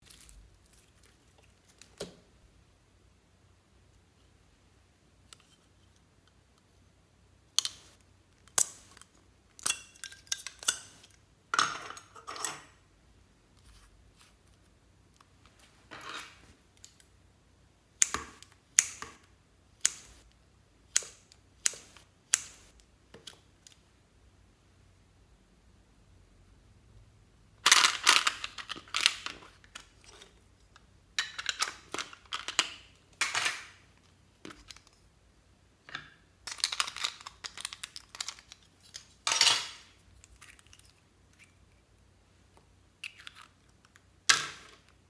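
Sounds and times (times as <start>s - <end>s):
plastic tubes clicking and snapping: 35.9s - 41.6s.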